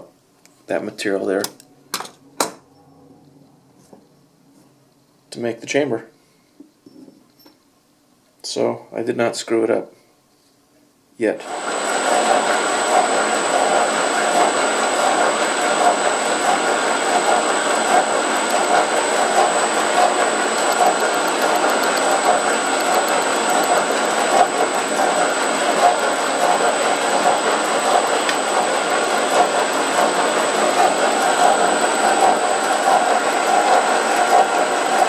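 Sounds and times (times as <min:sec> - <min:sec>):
metal lathe machining whir: 0:11.4 - 0:35.0.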